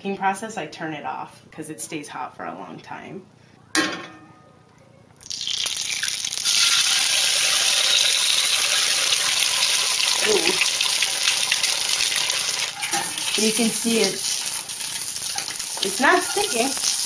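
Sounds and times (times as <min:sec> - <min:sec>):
egg sizzling in skillet: 0:05.2 - 0:17.0.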